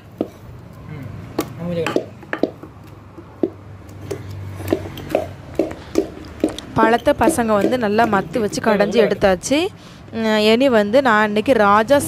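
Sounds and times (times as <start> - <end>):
wooden stick knocking steel bowl: 1.8 - 2.6, 6.8 - 8.5
fruit pulp squishing: 2.8 - 8.7.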